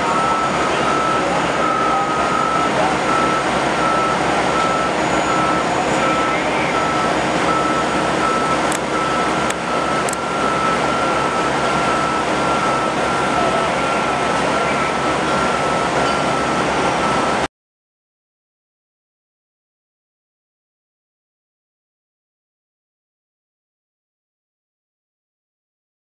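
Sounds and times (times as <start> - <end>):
backup alarm beeping: 0.0 - 17.4
engines and machinery din: 0.0 - 17.5.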